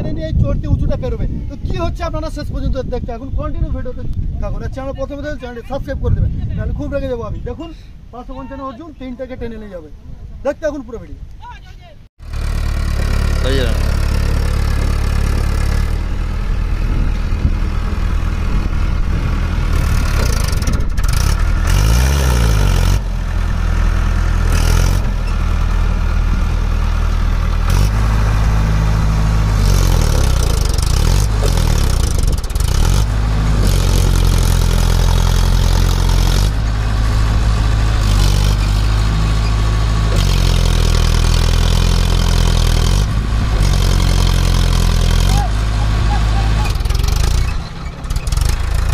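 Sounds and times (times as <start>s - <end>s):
tractor diesel engine revving: 12.2s - 48.9s.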